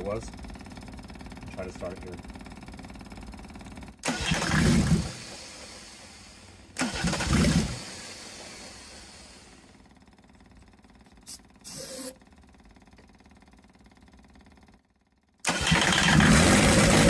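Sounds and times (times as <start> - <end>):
diesel engine firing briefly: 4.0 - 6.2, 15.4 - 17.0.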